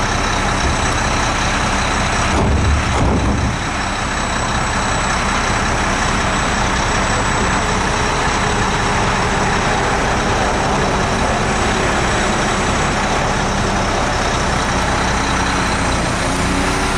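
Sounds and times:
diesel truck engine running: 0:00.0 - 0:16.9.

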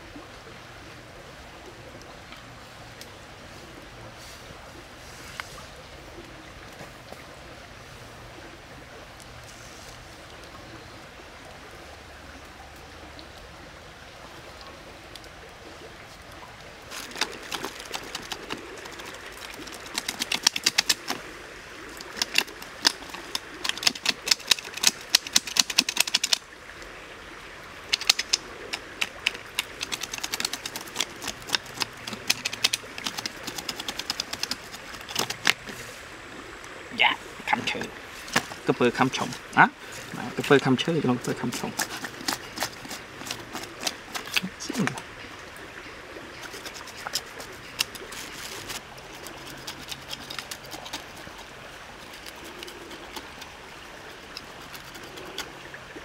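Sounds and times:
steady background hiss: 0:00.0 - 0:56.0
scaly hide scraped on wooden sticks: 0:16.9 - 0:21.2, 0:28.0 - 0:35.9, 0:41.2 - 0:44.6, 0:46.4 - 0:53.6.

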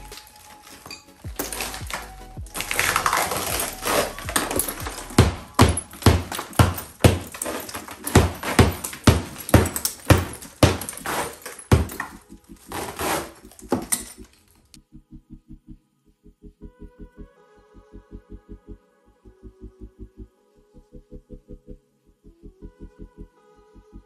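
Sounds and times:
hammer striking steel scraper: 0:00.0 - 0:14.3
mirror glass cracking and crunching: 0:00.0 - 0:14.8.

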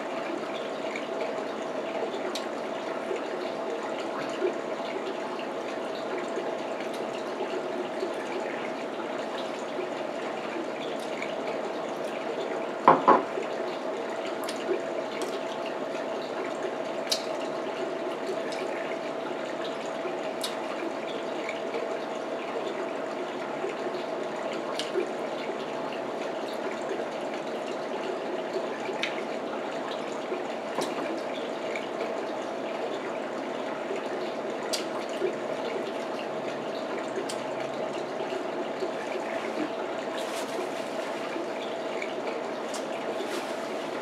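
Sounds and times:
faint clicks of eating: 0:02.2 - 0:02.5, 0:14.4 - 0:15.5, 0:17.0 - 0:17.5, 0:20.4 - 0:20.8, 0:24.6 - 0:25.1, 0:34.7 - 0:35.8, 0:37.1 - 0:38.0, 0:42.0 - 0:43.5.

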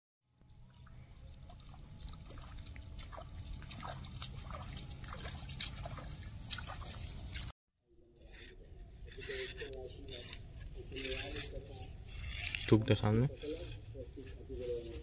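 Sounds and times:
footsteps splashing through water: 0:00.7 - 0:07.5.

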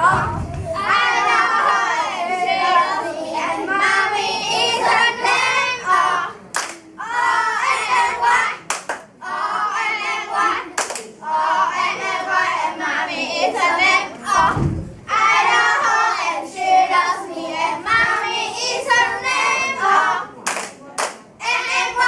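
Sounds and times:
children singing together: 0:00.0 - 0:20.4, 0:21.4 - 0:22.0
sharp hand claps: 0:06.5 - 0:06.8, 0:08.6 - 0:09.1, 0:10.8 - 0:11.1, 0:20.4 - 0:21.2.

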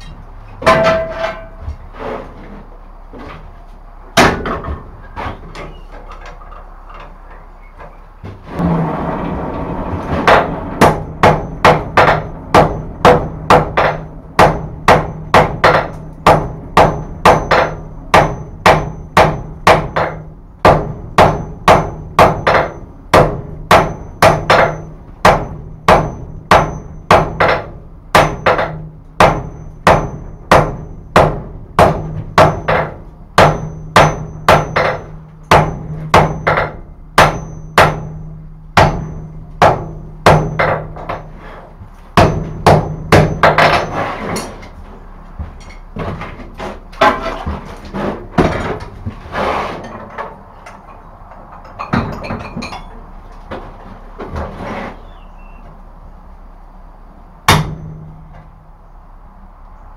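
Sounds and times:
hammer striking metal on anvil: 0:00.0 - 0:01.6, 0:10.2 - 0:41.3, 0:42.2 - 0:44.0, 0:57.5 - 0:58.3
low hum: 0:00.0 - 0:59.9.

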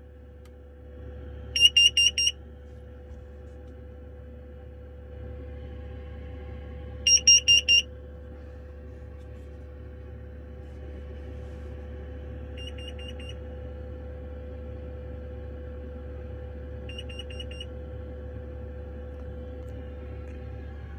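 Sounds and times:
steady low hum: 0:00.0 - 0:20.9
alarm high rapid beeps: 0:01.6 - 0:02.3, 0:07.1 - 0:07.8, 0:12.6 - 0:13.4.

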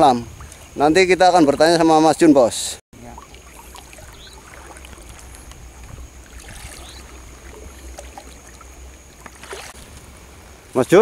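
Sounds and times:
water sloshing around legs: 0:03.0 - 0:10.1.

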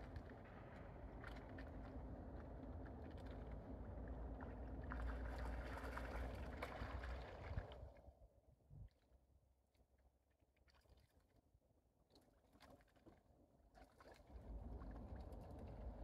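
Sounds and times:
wind rumble on microphone: 0:00.0 - 0:08.1, 0:14.3 - 0:16.0
ducks splashing in water: 0:04.8 - 0:07.7.

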